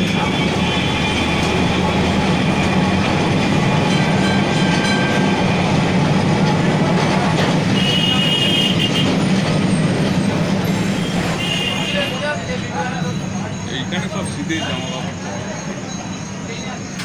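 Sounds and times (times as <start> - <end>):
tram car body rattling: 0.0 - 14.4
tram wheels rumbling on rails: 0.0 - 17.0.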